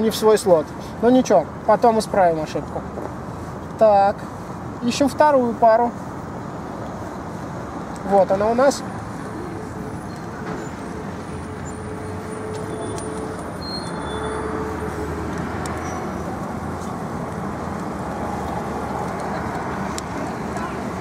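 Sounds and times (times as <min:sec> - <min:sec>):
road traffic: 0:00.0 - 0:21.0
vehicle engine rumbling nearby: 0:05.4 - 0:21.0.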